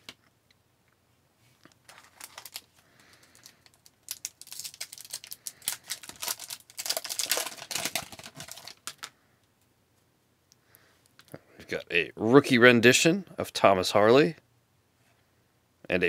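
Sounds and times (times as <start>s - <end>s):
wrapper crackling: 1.8s - 9.1s.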